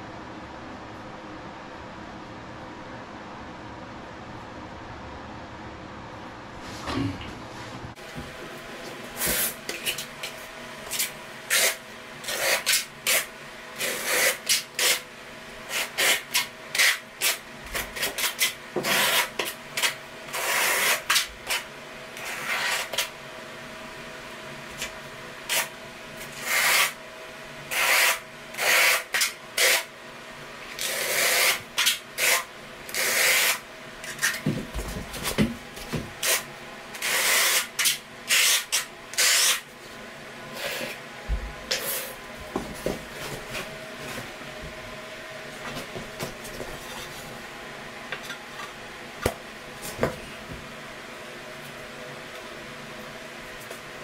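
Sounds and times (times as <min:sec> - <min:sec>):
trowel scraping mortar: 0:15.7 - 0:21.6.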